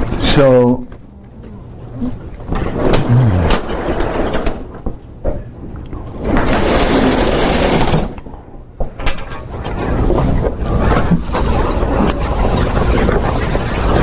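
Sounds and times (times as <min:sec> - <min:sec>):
chalkboard panels rolling on tracks: 0:02.5 - 0:04.9, 0:06.2 - 0:08.2, 0:09.0 - 0:14.0.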